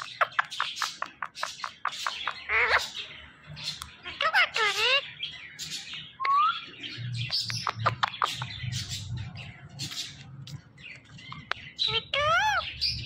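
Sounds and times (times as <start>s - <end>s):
parakeet chirping and chattering: 0.0s - 13.0s.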